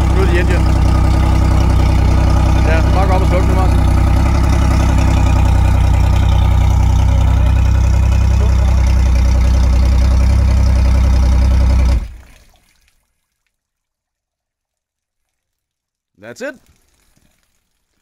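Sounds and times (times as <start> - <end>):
outboard engine idling: 0.0 - 12.3.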